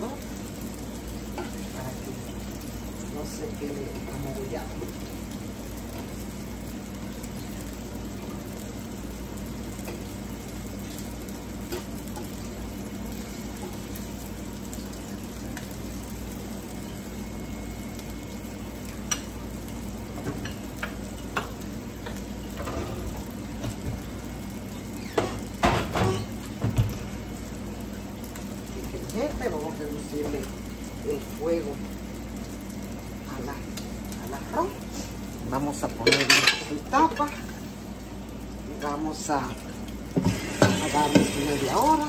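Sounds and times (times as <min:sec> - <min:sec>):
plantain slices sizzling in oil: 0:00.0 - 0:42.0
cookware clattering: 0:36.0 - 0:37.4.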